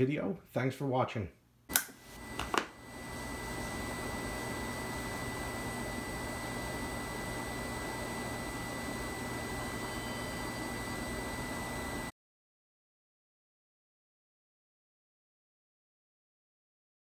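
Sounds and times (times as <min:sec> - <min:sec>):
thin high steady tone: 0:03.0 - 0:12.1.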